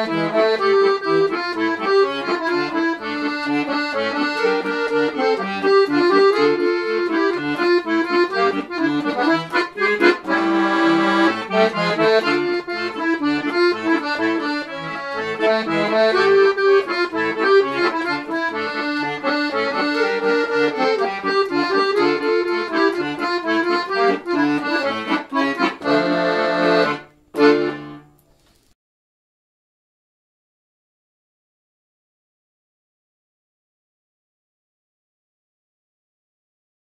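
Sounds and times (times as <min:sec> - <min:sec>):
accordion playing lively tune: 0:00.0 - 0:28.1.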